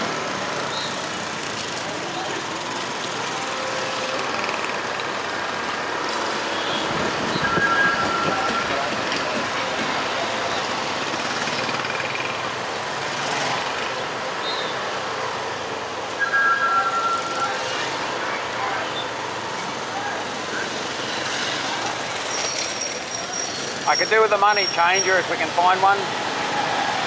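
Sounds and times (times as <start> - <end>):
street traffic: 0.0 - 27.0
wind and road noise: 0.0 - 27.0
two-tone vehicle horn beeps: 6.5 - 8.8.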